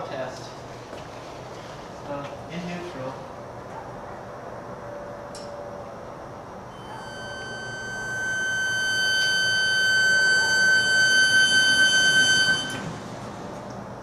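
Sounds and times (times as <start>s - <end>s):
high-pitched electric motor whine: 6.7s - 13.0s.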